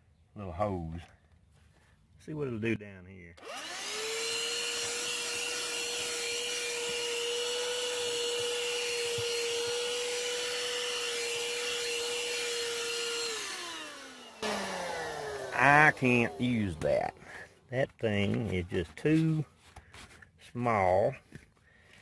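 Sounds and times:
motor winding down: 0:03.4 - 0:17.2
handheld vacuum whining: 0:03.4 - 0:17.5.

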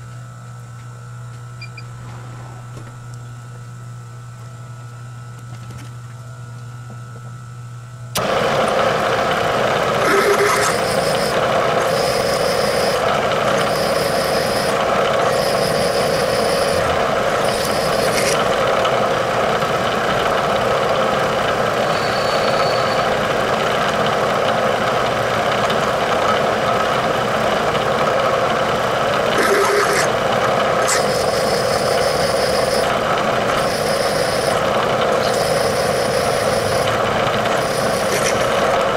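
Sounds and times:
milling machine spindle hum: 0:06.2 - 0:38.9
drill cutting metal: 0:08.2 - 0:18.7, 0:29.2 - 0:38.9.

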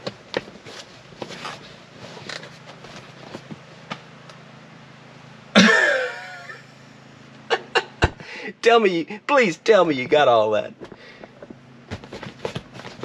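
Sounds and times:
seat cushion clicks and rustles: 0:00.0 - 0:04.4, 0:10.7 - 0:13.0
low steady hum: 0:00.0 - 0:13.0
man grunting: 0:05.6 - 0:06.3.

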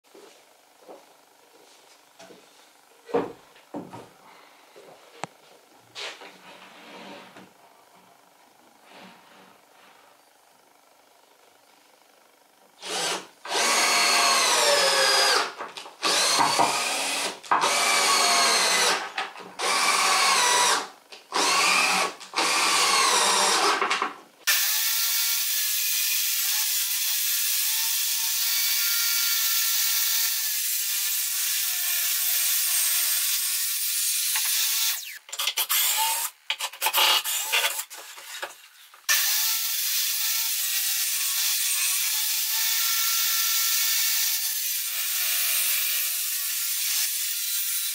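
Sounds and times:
cordless drill driving screws: 0:12.8 - 0:19.0, 0:19.6 - 0:23.8
table saw cutting wood: 0:12.8 - 0:38.0, 0:39.1 - 0:47.9.

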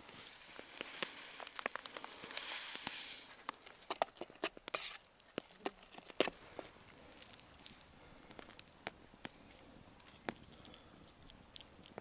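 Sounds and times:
campfire pops and crackles: 0:00.0 - 0:12.0.

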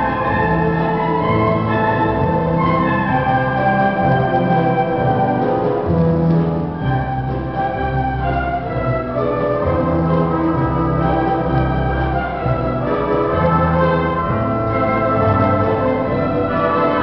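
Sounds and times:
symphony orchestra playing chords: 0:00.0 - 0:17.0.

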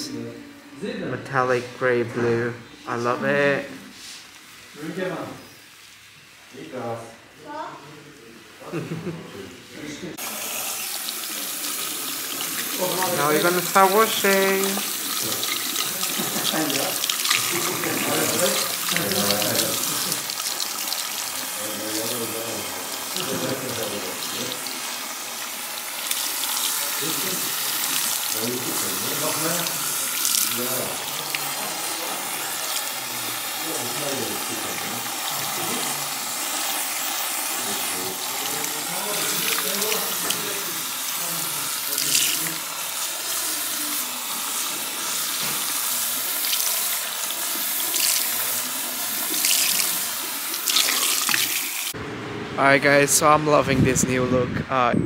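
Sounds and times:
shower sprayer spraying water: 0:02.7 - 0:07.6, 0:10.2 - 0:52.0
water splashing into basin: 0:41.8 - 0:42.7, 0:45.4 - 0:52.0.

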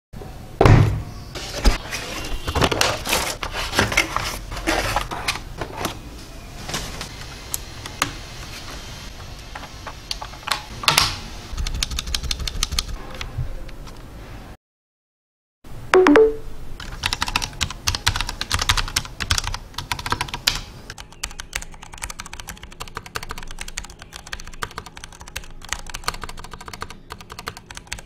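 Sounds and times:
keyboard being handled: 0:01.4 - 0:06.0
key clicks typing: 0:11.6 - 0:13.0, 0:16.0 - 0:28.0.

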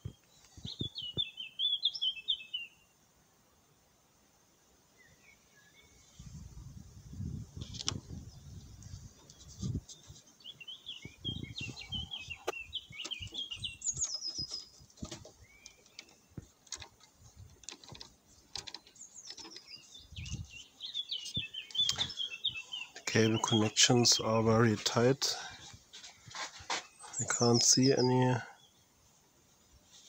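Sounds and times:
songbird twittering: 0:00.0 - 0:02.9, 0:08.1 - 0:25.3, 0:26.8 - 0:28.8
handling bumps and clicks: 0:12.4 - 0:20.3.

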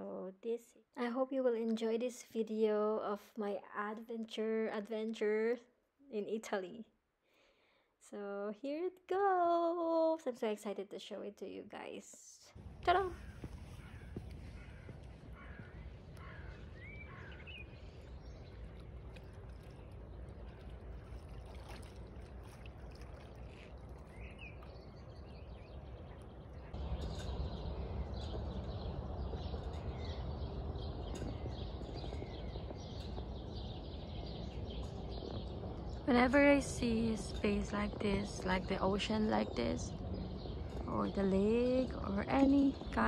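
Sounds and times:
steady low rumble: 0:12.5 - 0:43.0.

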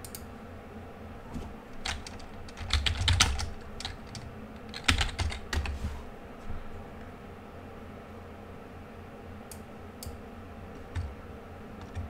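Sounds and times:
computer keyboard typing: 0:01.8 - 0:05.8, 0:10.8 - 0:11.2, 0:11.8 - 0:12.0.

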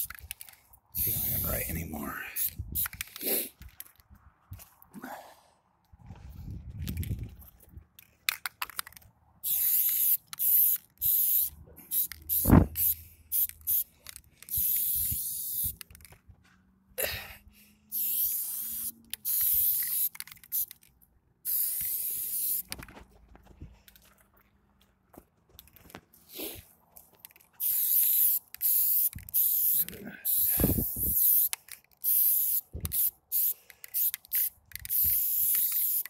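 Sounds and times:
spray-paint can hissing: 0:01.0 - 0:01.5, 0:09.4 - 0:13.9, 0:14.5 - 0:15.9, 0:17.9 - 0:20.8, 0:21.4 - 0:22.8, 0:27.6 - 0:36.0.

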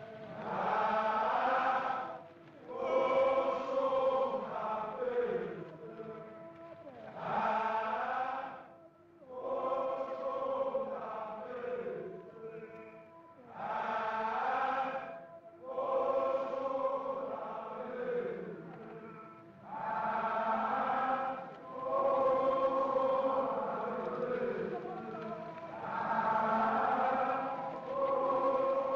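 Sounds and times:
choral chanting: 0:00.0 - 0:28.9.

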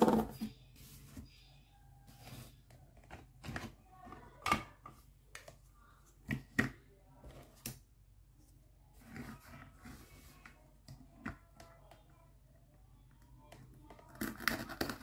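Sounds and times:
plastic toys clicking and knocking: 0:13.1 - 0:15.0.

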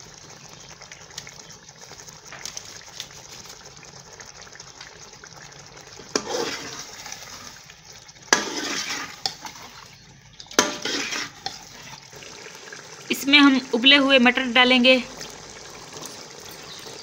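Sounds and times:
gravy sloshing: 0:01.0 - 0:13.2.

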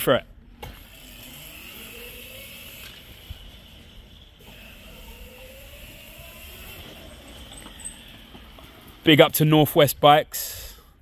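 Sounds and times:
electric quad motor whine: 0:00.5 - 0:09.1.

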